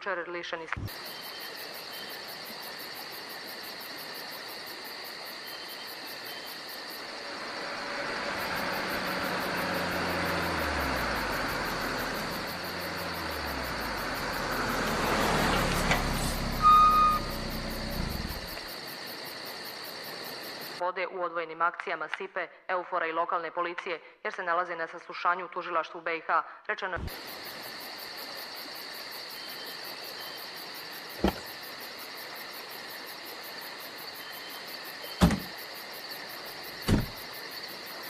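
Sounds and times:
car engine driving by: 7.0 - 18.7, 36.7 - 37.2
short high beep: 16.6 - 17.3.

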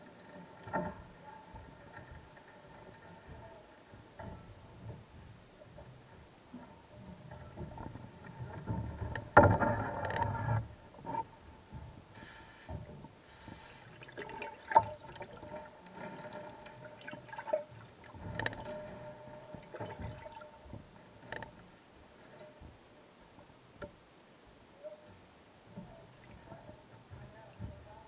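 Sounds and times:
water sloshing and dripping: 0.0 - 6.0, 6.6 - 22.8, 25.7 - 28.0
faint steady hum: 0.0 - 28.0
knocks and splashes: 7.1 - 10.7, 12.7 - 21.4.

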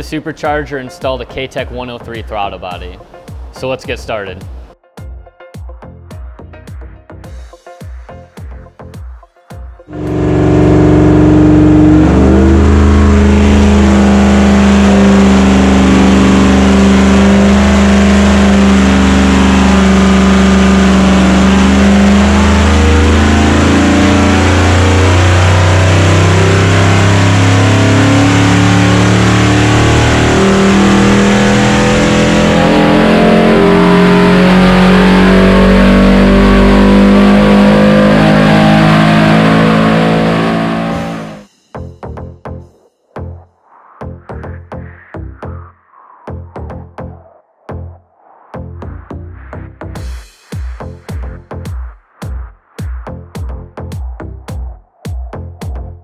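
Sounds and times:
engine revving on dynamometer: 9.9 - 41.5.

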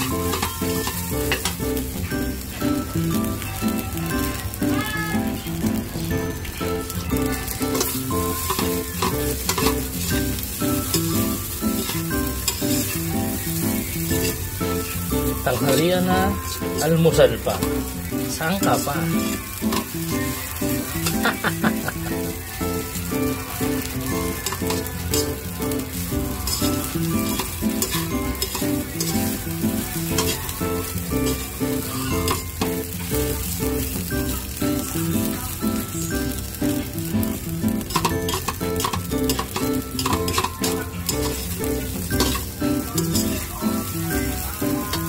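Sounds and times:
metal spatula scraping a wok: 0.0 - 1.6, 7.2 - 15.8, 17.7 - 22.5, 23.4 - 33.9, 37.8 - 45.0
background music: 0.0 - 45.0
rice sizzling: 0.0 - 45.0.

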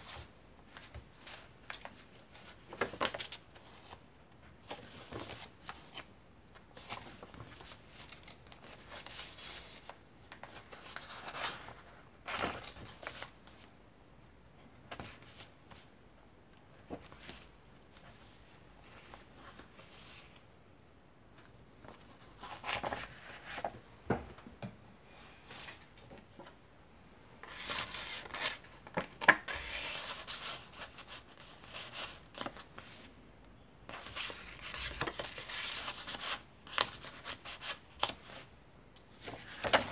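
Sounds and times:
paper pages rustling: 0.0 - 4.0, 4.6 - 13.7, 21.8 - 23.8, 27.4 - 33.1, 33.9 - 38.5, 39.2 - 39.9
paper crackling: 33.9 - 38.5, 39.2 - 39.9.

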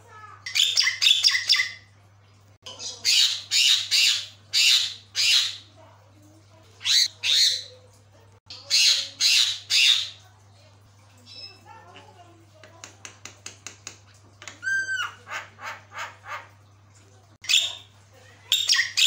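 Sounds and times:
myna squawking: 6.8 - 7.7.

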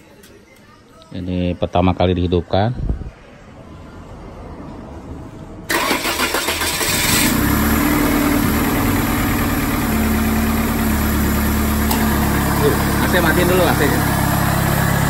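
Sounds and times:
starter motor cranking: 5.7 - 7.6
car engine idling: 5.7 - 15.0
loud exhaust: 5.7 - 15.0.

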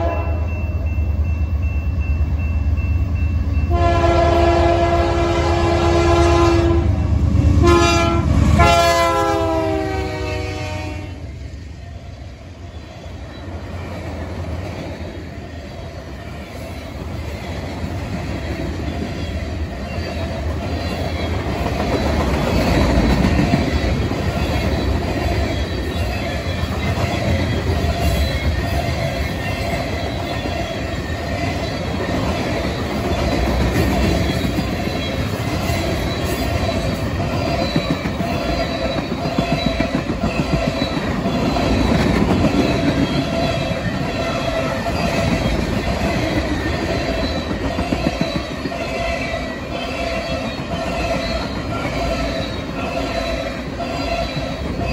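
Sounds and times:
freight train wheels rumbling: 0.0 - 54.9
wheels clickety-clack: 13.4 - 54.9.

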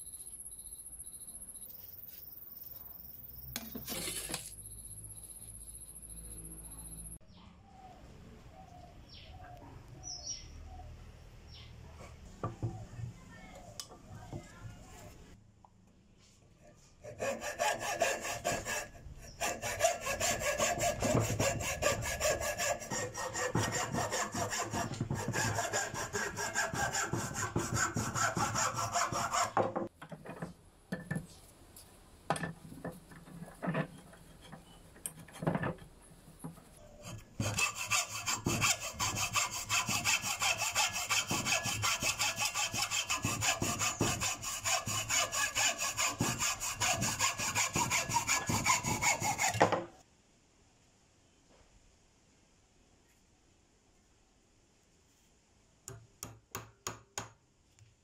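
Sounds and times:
hacksaw cutting wood: 17.1 - 29.7, 37.0 - 49.7.

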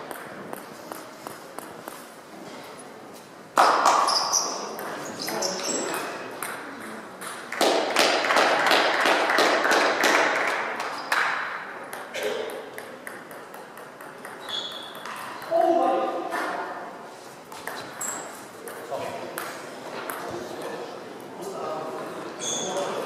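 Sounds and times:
table tennis ball clicking: 11.9 - 15.5.

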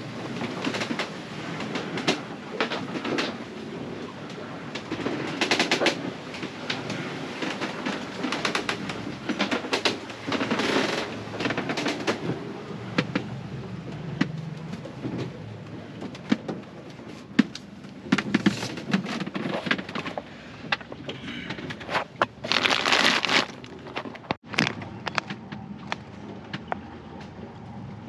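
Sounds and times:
low steady rumble: 10.1 - 18.4
clicks knocks and rattles: 17.3 - 26.8.

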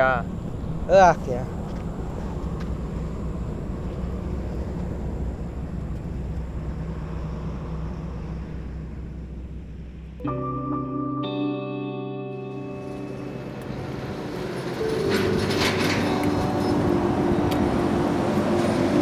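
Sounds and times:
vehicle engine rumbling: 0.0 - 10.3, 12.7 - 19.0
music with held notes: 10.2 - 19.0.

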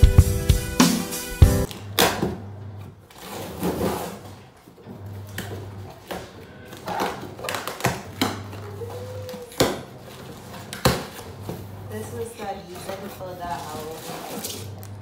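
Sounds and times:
cardboard rustles and scrapes: 12.7 - 14.8.

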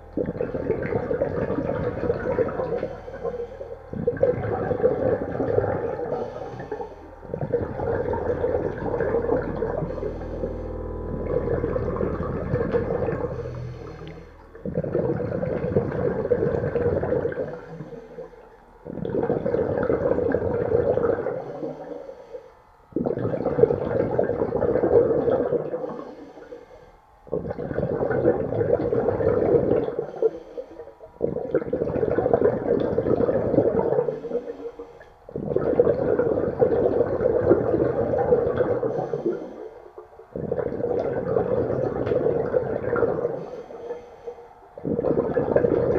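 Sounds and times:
underwater regulator breathing bubbles: 0.0 - 45.9.

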